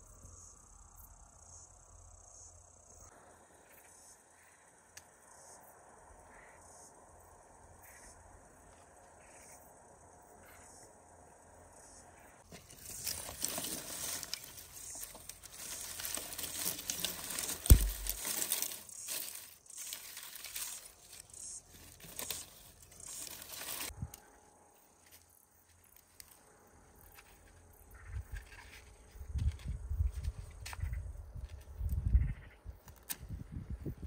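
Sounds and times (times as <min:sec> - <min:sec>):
dry twigs rustling and crackling: 0:12.4 - 0:24.2
heavy thump: 0:17.7 - 0:18.2.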